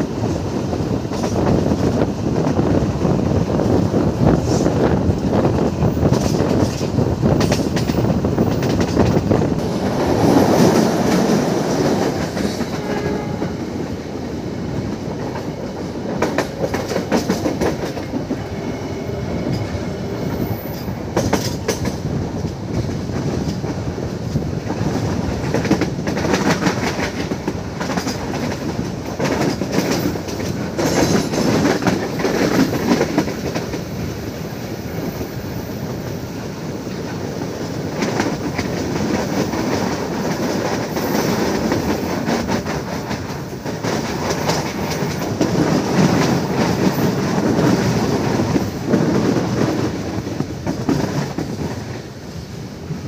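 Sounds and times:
train carriage rumble: 0:00.0 - 0:53.0
wheels clicking over rail joints: 0:03.5 - 0:13.5, 0:14.8 - 0:18.4, 0:20.5 - 0:34.0.

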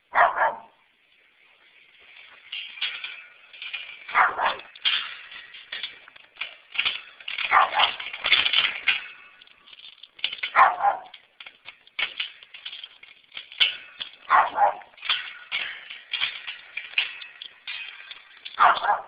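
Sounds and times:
dogs barking: 0:00.1 - 0:00.8, 0:04.1 - 0:04.7, 0:07.5 - 0:08.0, 0:10.5 - 0:11.1, 0:14.3 - 0:14.9, 0:18.6 - 0:19.0.

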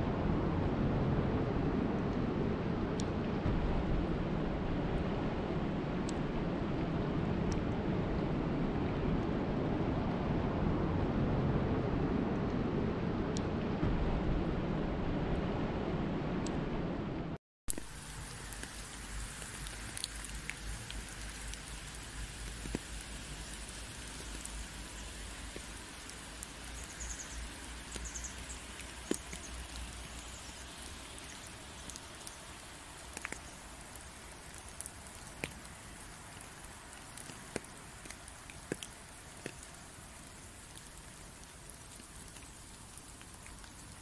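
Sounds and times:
low rumble: 0:00.0 - 0:17.4
drops ticking: 0:17.7 - 0:44.0
steady rain hiss: 0:17.7 - 0:44.0.

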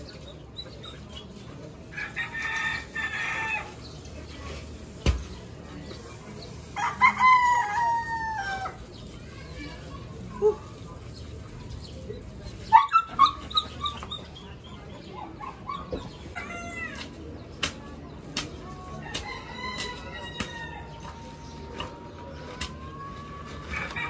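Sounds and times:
rooster clucking and crowing: 0:06.7 - 0:08.8, 0:23.6 - 0:24.0.

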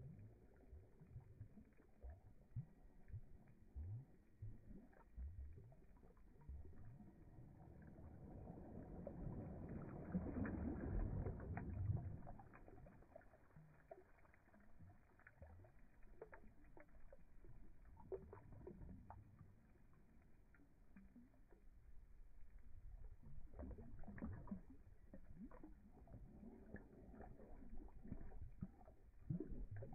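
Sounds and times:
dog bubbling and splashing water: 0:08.9 - 0:21.6, 0:23.2 - 0:29.9
water dripping: 0:10.3 - 0:21.9, 0:23.2 - 0:29.9.

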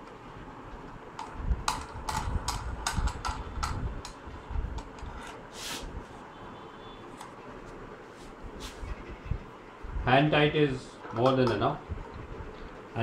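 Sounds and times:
short scraping hiss: 0:05.5 - 0:05.9.

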